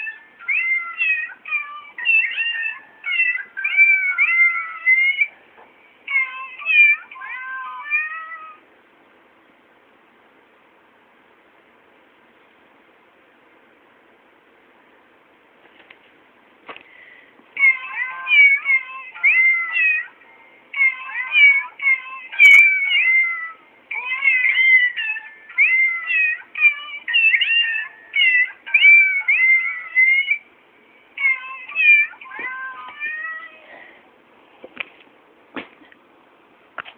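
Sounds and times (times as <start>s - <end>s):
greeting card meow tune: 0.0s - 5.3s, 6.1s - 8.6s, 17.6s - 30.4s, 31.2s - 33.6s.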